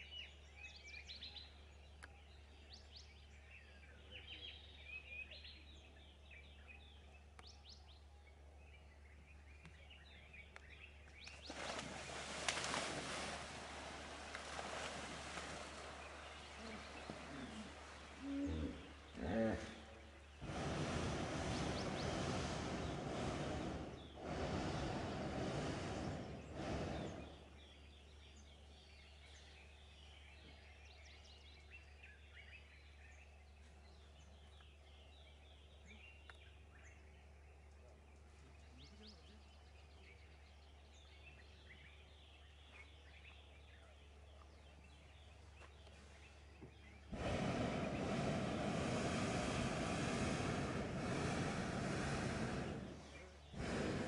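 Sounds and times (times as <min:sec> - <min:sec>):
birds chirping: 0:00.0 - 0:54.0
propane burner blast: 0:20.4 - 0:27.4, 0:47.1 - 0:54.0.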